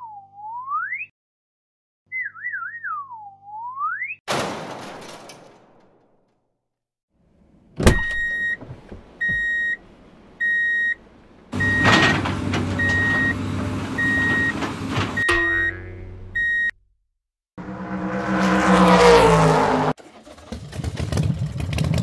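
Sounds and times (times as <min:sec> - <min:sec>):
noisy crash: 0:04.3 - 0:06.2
backup beeper: 0:07.8 - 0:08.6, 0:09.2 - 0:09.8, 0:10.4 - 0:11.0, 0:11.6 - 0:13.4, 0:14.0 - 0:14.6, 0:15.2 - 0:16.8
engine running: 0:11.0 - 0:16.5, 0:17.6 - 0:22.0.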